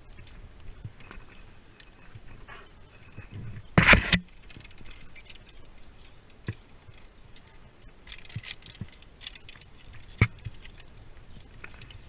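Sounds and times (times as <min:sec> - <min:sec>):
metal carabiners clinking: 0:04.0 - 0:12.0.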